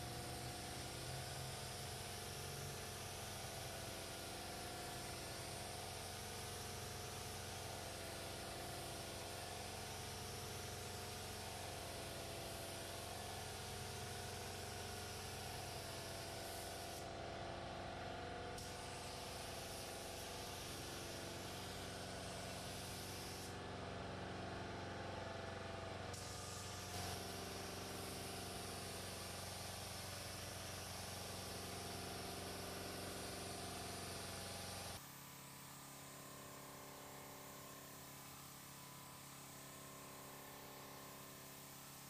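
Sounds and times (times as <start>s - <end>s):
spray gun hissing: 22.4s - 23.5s.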